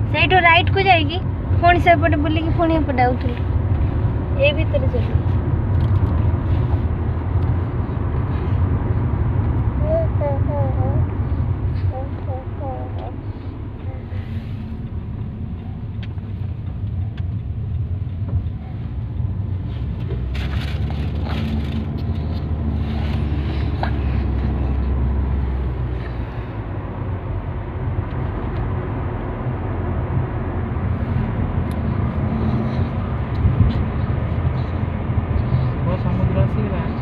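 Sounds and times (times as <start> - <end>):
car tyre and engine rumble: 0.0 - 37.0.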